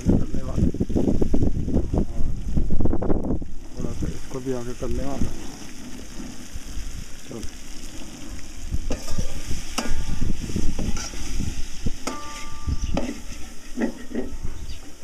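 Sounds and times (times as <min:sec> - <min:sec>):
frying sizzle: 0:00.0 - 0:15.0
metal spatula scraping pan: 0:08.9 - 0:15.0
spatula ringing against pan: 0:12.0 - 0:13.3.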